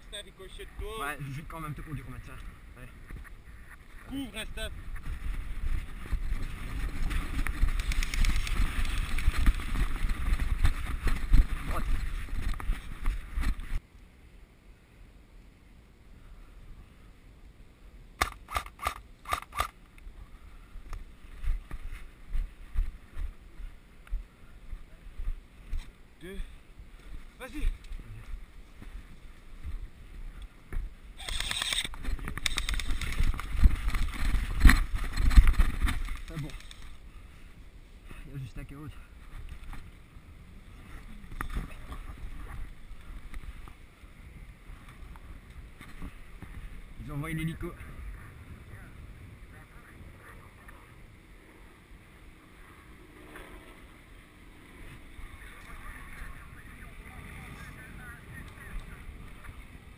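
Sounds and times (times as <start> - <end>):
wind rumbling on microphone: 0.0 - 13.8, 19.9 - 59.9
footsteps on dirt and twigs: 3.0 - 13.8, 20.8 - 26.0, 26.8 - 37.6
airsoft rifle shots: 18.2 - 19.8
sharp click: 18.2 - 19.8, 31.2 - 33.3.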